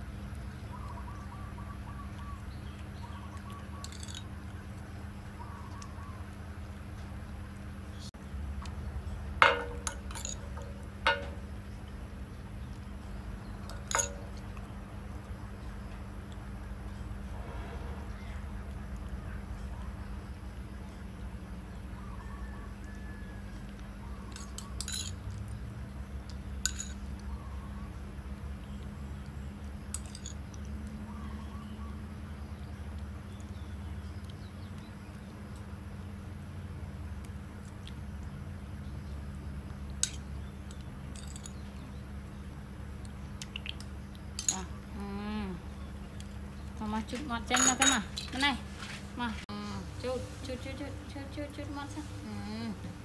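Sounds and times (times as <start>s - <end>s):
steady low hum: 0.0s - 53.0s
spoon clinking on ceramic bowl: 9.4s - 11.5s, 13.7s - 14.4s, 24.4s - 25.2s, 26.7s - 27.0s, 47.5s - 48.2s.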